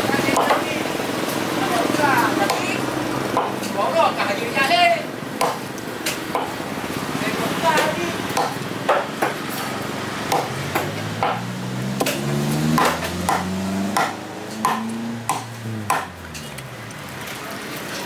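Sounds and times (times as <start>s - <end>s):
cleaver chopping on wooden block: 2.4s - 2.7s, 5.4s - 6.6s, 7.8s - 9.4s, 10.3s - 16.3s.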